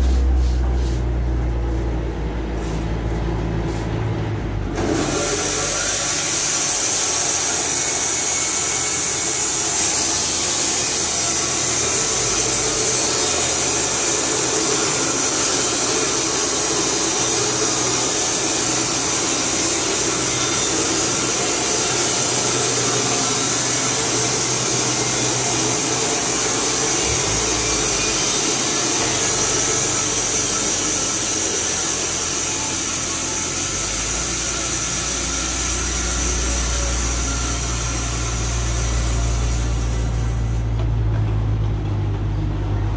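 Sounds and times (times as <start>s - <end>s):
band saw blade cutting log: 4.7s - 40.8s.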